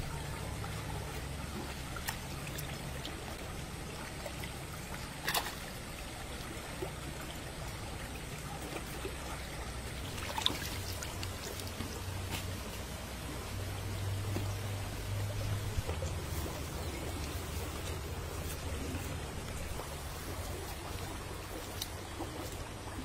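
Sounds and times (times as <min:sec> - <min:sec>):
stream water trickling: 0:00.0 - 0:23.0
hands splashing in water: 0:10.0 - 0:12.7.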